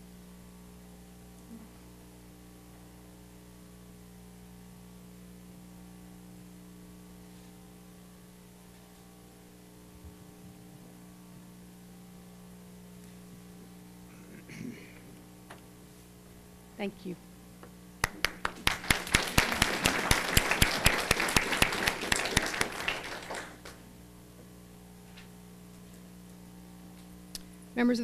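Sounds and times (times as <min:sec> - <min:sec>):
electrical mains hum: 0:00.0 - 0:28.0
faint microphone hiss: 0:10.5 - 0:28.0.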